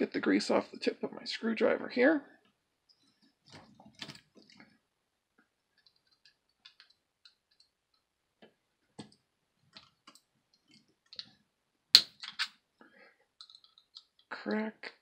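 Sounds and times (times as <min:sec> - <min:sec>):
screw cracking loose: 0:12.0 - 0:12.6, 0:13.4 - 0:14.3.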